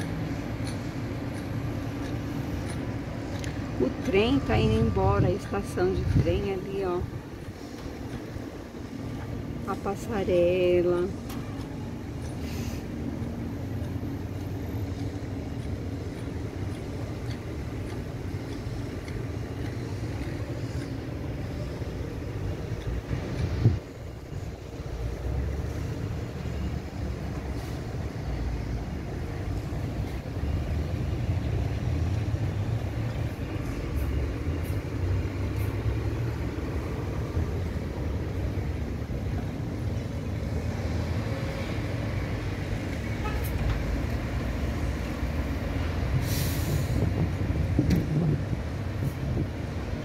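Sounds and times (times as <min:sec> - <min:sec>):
city traffic rumble: 0:00.0 - 0:50.0
short sharp hiss: 0:12.4 - 0:12.8, 0:46.2 - 0:47.0.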